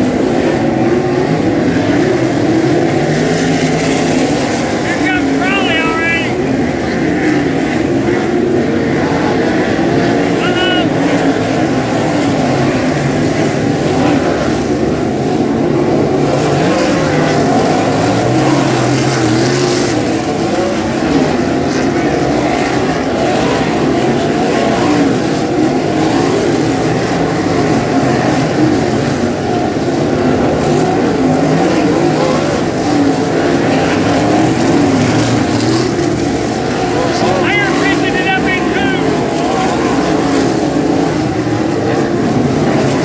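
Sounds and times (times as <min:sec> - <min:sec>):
race car engines passing: 0:00.0 - 0:43.0.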